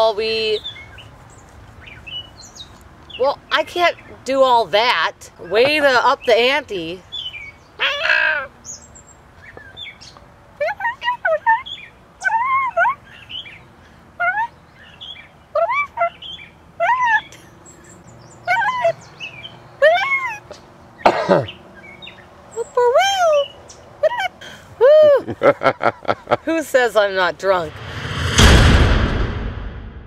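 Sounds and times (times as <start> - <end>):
bird-like calls: 7.0 - 10.2.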